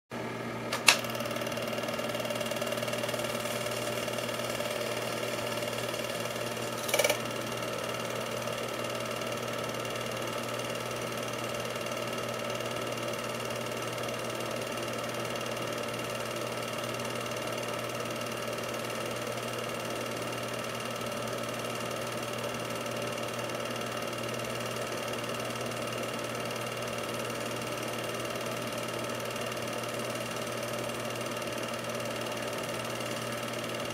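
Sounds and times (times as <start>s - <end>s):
film projector whirring: 0.2s - 33.9s
sharp click: 0.7s - 1.1s.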